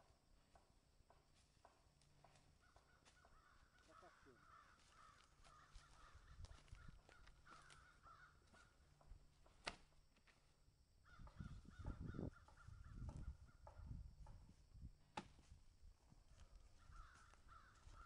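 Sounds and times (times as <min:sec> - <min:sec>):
bird calling: 0:02.5 - 0:08.9, 0:11.1 - 0:13.9, 0:16.5 - 0:18.0.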